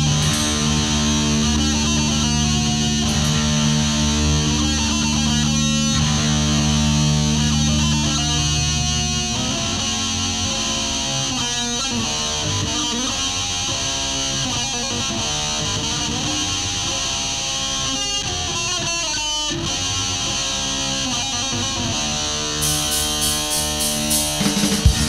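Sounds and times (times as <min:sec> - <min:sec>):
heavy metal guitar chords: 0:00.0 - 0:25.0
drums and cymbals: 0:22.6 - 0:25.0.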